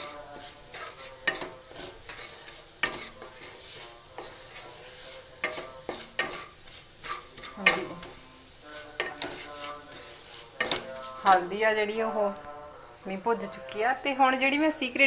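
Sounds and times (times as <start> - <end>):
spatula scraping and knocking pan: 0.0 - 11.6
masala sizzling in oil: 0.0 - 15.0.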